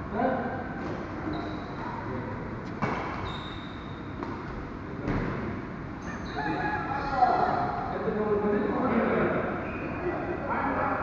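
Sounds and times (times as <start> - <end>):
shoes squeaking on court: 1.2 - 2.0, 2.6 - 4.5
racket hitting shuttlecock: 2.8 - 3.2, 4.2 - 4.5.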